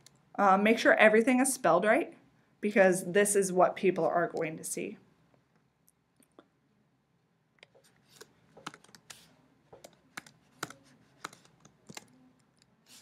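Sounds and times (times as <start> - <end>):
computer keyboard keystrokes: 9.8 - 12.2.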